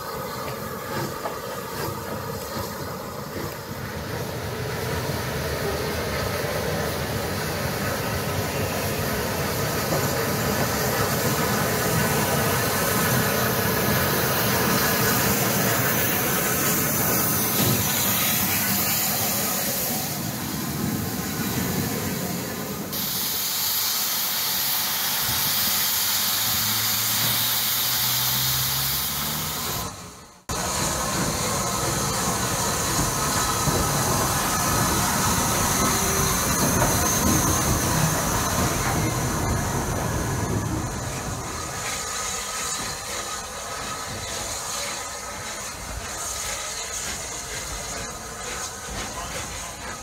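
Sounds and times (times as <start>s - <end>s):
steam hissing from locomotive: 0.0s - 50.0s
train coaches rumbling over track: 0.0s - 50.0s.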